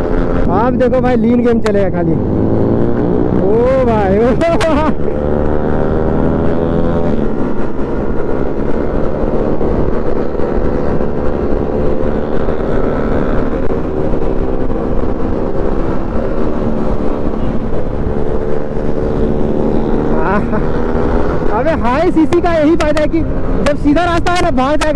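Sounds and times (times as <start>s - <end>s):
motorcycle engine droning: 0.0s - 24.9s
wind rushing over microphone: 0.0s - 24.9s.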